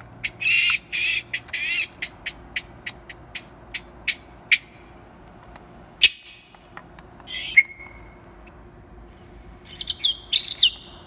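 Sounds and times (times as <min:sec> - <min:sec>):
harsh bird calls: 0:00.2 - 0:04.8, 0:07.2 - 0:08.1, 0:09.1 - 0:11.0.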